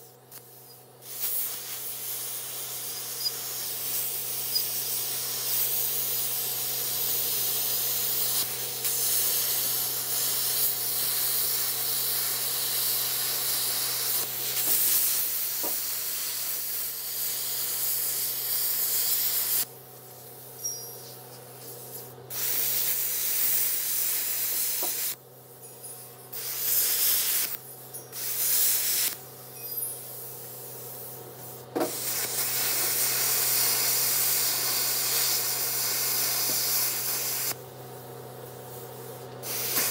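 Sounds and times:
welding arc hissing and crackling: 0.0 - 25.6, 26.2 - 39.9.

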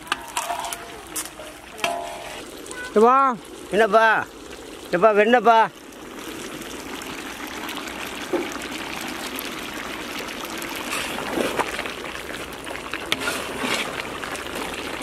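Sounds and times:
metal ladle knocking and scraping: 0.0 - 2.4
gravy simmering and bubbling: 0.0 - 15.0.

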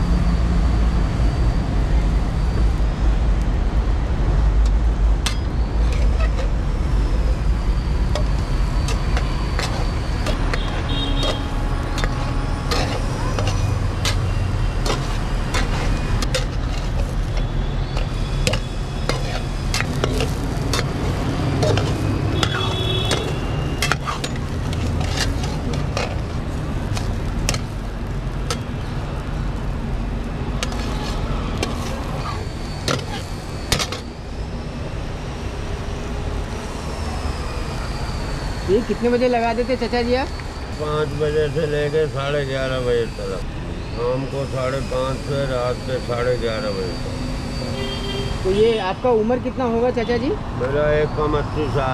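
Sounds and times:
road traffic rumble: 0.0 - 51.9
metal spatula scraping frying pan: 8.2 - 27.8, 30.6 - 34.0.

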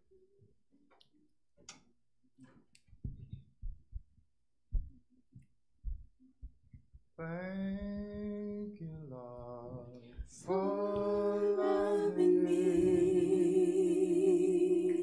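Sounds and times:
low thumps and knocks: 2.9 - 11.3.

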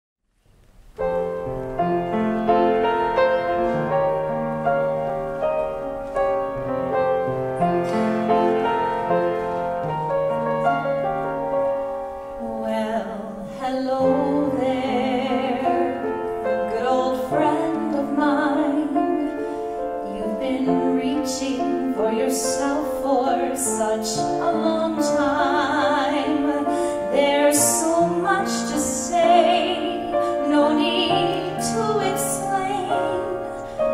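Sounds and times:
solo piano: 0.4 - 33.9
woman singing with vibrato: 12.4 - 19.4, 20.0 - 33.9.

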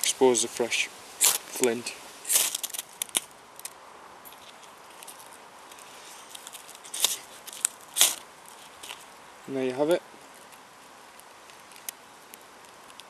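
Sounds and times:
striker scraping fire steel: 0.0 - 9.1.

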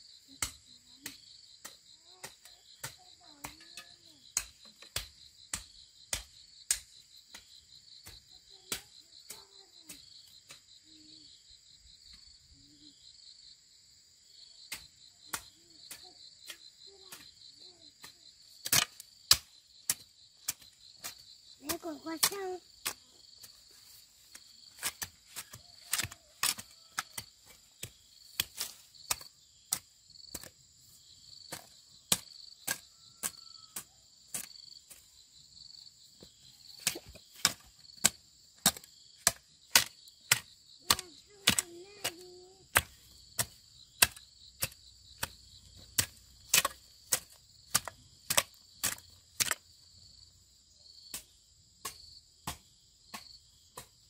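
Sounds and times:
insects trilling: 0.0 - 54.0
hoe chopping into dry soil: 24.3 - 30.6, 31.5 - 35.0, 36.2 - 49.7, 51.1 - 54.0.

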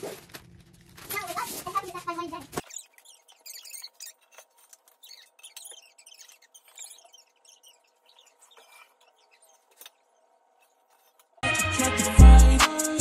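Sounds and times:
metal table frame clicks and squeaks: 2.6 - 11.4.

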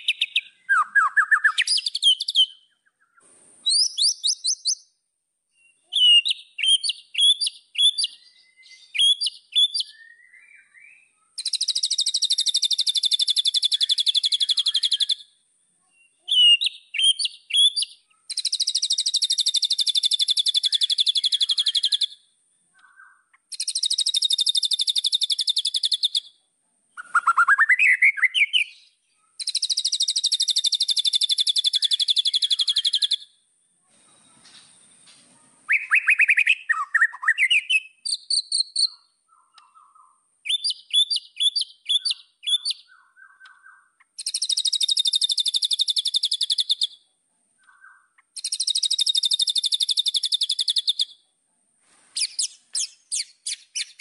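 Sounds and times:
bird singing fast trills: 0.0 - 5.0, 5.6 - 15.4, 16.0 - 26.3, 27.0 - 33.4, 35.7 - 47.0, 47.7 - 51.2, 52.2 - 54.0.

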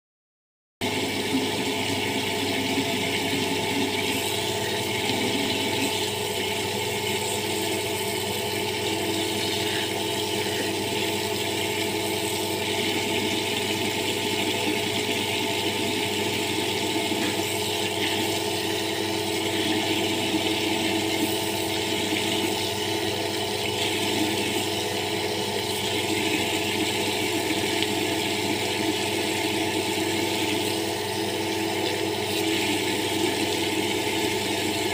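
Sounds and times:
tap water splashing into bucket: 10.5 - 18.6.

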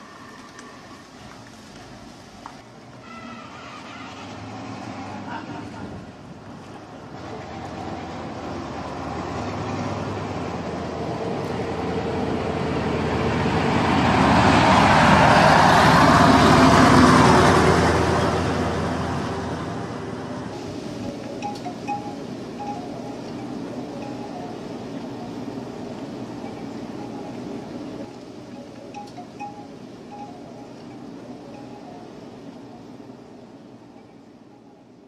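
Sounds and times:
heavy vehicle driving past: 3.0 - 28.1.

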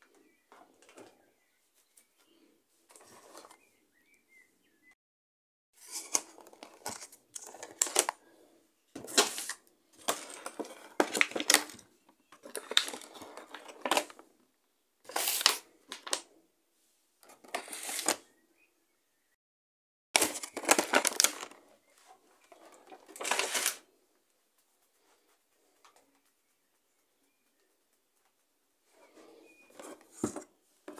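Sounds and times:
plastic packaging crinkling: 5.8 - 8.2, 9.0 - 14.2, 20.2 - 21.7, 22.4 - 23.9.

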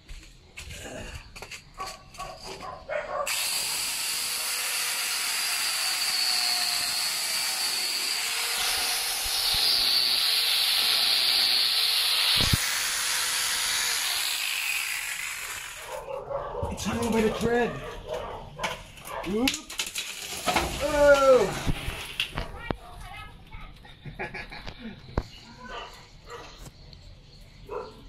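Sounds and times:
angle grinder chainsaw cutting: 3.3 - 16.0.

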